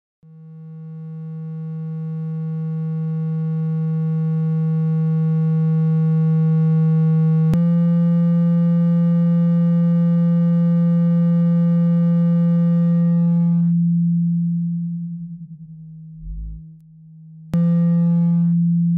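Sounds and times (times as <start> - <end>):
low electronic tone: 16.1 - 16.7.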